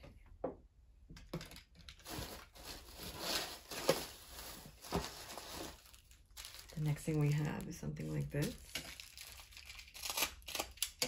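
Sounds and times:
rustling shredded paper: 2.0s - 10.7s.

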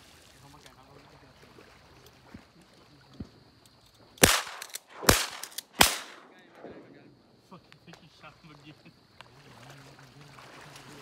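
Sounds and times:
shotgun shots: 4.2s - 6.8s.

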